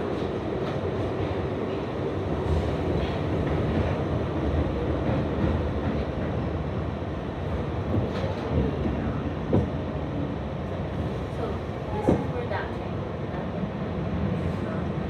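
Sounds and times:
subway train rumbling in tunnel: 0:00.0 - 0:15.0.

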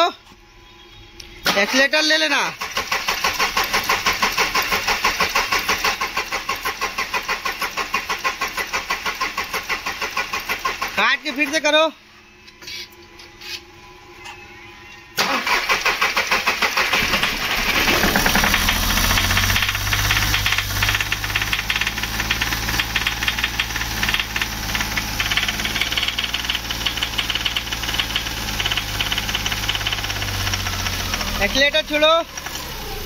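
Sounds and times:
starter cranking engine: 0:01.5 - 0:11.2, 0:15.2 - 0:33.0
rapid tapping engine knock: 0:02.7 - 0:11.1, 0:16.9 - 0:32.5
car engine running: 0:15.2 - 0:33.0.

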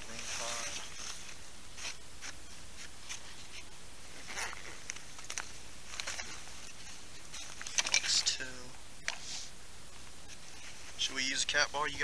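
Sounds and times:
rustling in nylon backpack: 0:00.0 - 0:08.3.

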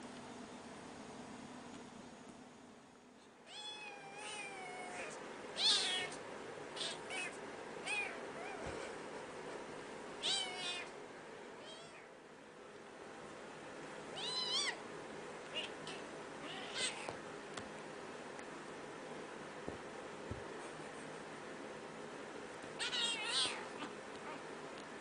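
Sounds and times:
cat meowing: 0:03.5 - 0:06.2, 0:10.2 - 0:10.9, 0:15.5 - 0:17.1, 0:22.8 - 0:24.4.

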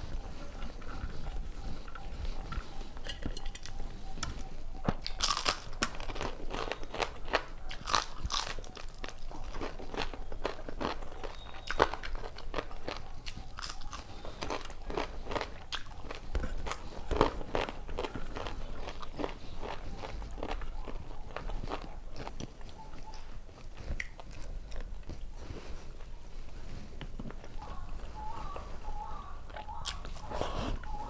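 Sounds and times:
chewing food: 0:00.0 - 0:31.0
crisp crunches: 0:04.2 - 0:25.9.

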